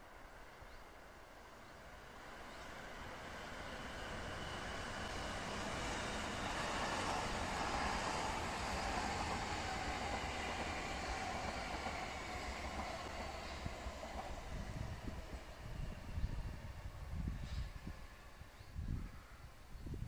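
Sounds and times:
electric train rolling past: 0.0 - 19.8.

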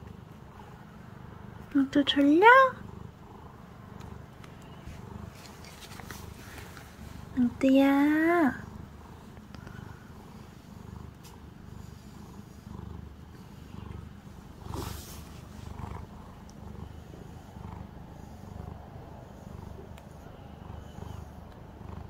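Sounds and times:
cat purring: 0.0 - 22.0
short rustle: 4.4 - 7.4, 14.1 - 16.3.

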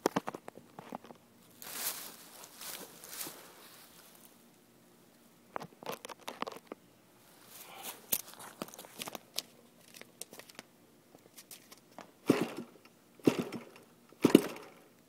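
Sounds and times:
camera handling clicks and rustles: 5.5 - 6.8, 8.0 - 12.1.

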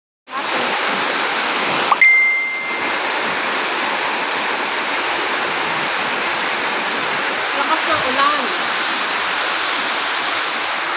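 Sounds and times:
steady rushing noise: 0.3 - 10.9
bright ding: 1.9 - 3.1.

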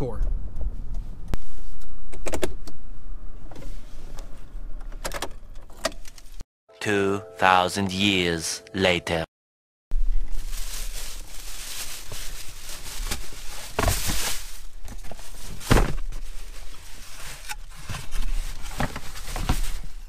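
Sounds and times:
plastic bag rustling: 10.2 - 20.0.

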